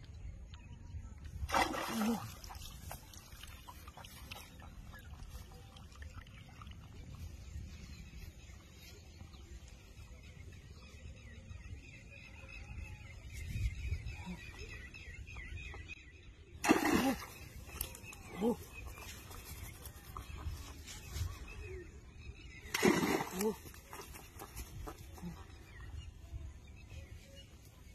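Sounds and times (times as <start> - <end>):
loud water splash: 1.5 - 2.5, 16.6 - 17.3, 22.7 - 23.6.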